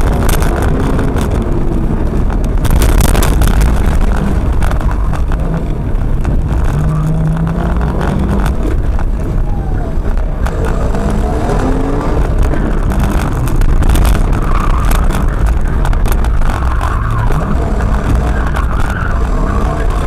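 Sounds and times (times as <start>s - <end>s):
car engine driven hard: 0.0s - 20.0s.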